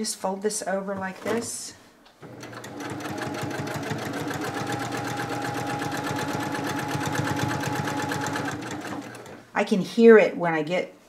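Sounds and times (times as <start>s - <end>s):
sewing machine stitching: 2.2s - 9.5s.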